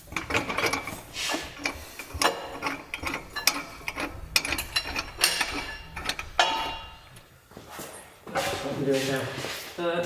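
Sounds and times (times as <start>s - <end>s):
metal clinks: 0.0s - 7.2s
ratchet clicking: 0.0s - 7.2s
ringing metal clank: 0.1s - 7.2s.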